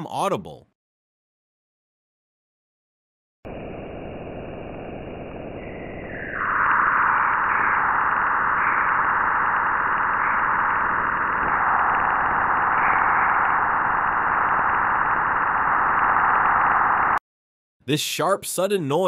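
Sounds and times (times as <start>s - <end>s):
steady high-pitched hiss: 3.5s - 17.2s.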